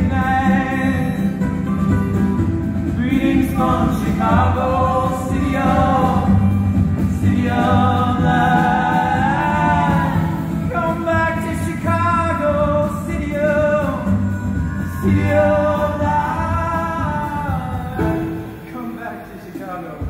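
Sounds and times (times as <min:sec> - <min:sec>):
voices singing together: 0:00.0 - 0:01.7, 0:02.8 - 0:18.5
plucked upright bass: 0:00.0 - 0:18.7
acoustic guitar: 0:00.0 - 0:20.0
harmonica: 0:12.4 - 0:18.6.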